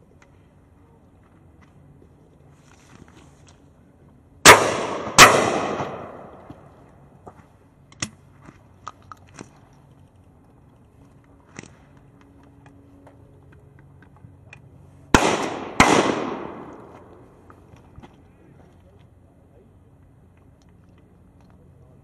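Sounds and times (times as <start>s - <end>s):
shotgun shots: 4.4s - 6.4s, 15.1s - 17.1s.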